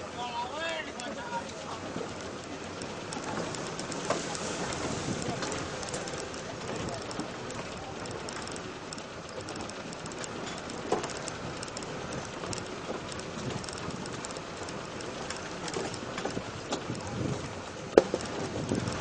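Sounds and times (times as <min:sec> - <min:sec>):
off-road vehicle driving: 0:00.0 - 0:19.0
rattles and knocks: 0:01.8 - 0:19.0.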